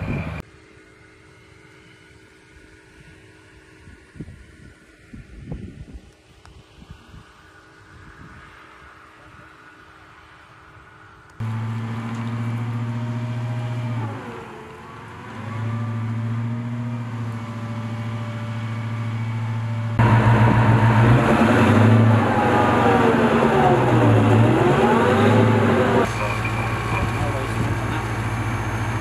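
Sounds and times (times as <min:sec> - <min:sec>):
armored vehicle diesel engine running: 0:00.0 - 0:04.0, 0:11.4 - 0:29.0.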